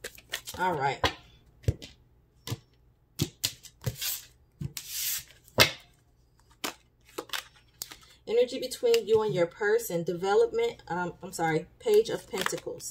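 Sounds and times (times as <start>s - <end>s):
papery card swishes: 3.8s - 5.4s.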